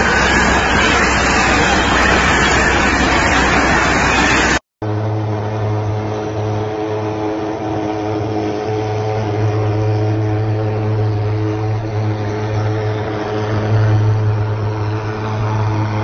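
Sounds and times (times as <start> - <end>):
loud hiss: 0.0 - 4.6
fogging machine engine drone: 0.0 - 16.0.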